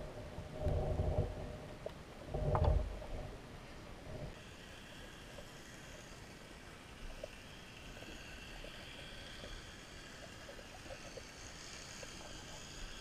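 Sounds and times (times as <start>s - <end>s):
small underwater ticks: 0.6s - 2.8s, 4.3s - 13.0s
underwater hiss of moving water: 4.4s - 13.0s.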